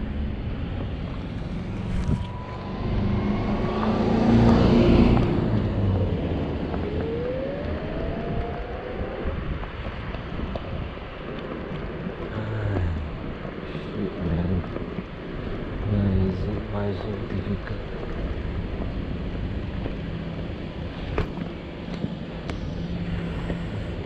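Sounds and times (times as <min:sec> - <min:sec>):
wind and road noise: 0:00.0 - 0:24.0
electric scooter motor whine: 0:01.2 - 0:11.6, 0:21.1 - 0:24.0.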